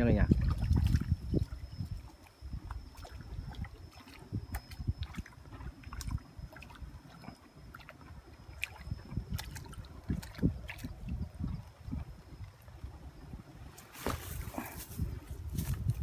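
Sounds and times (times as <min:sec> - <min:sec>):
fish splashing in water: 0:00.3 - 0:11.4
knocks and rustles in weeds: 0:13.8 - 0:16.0.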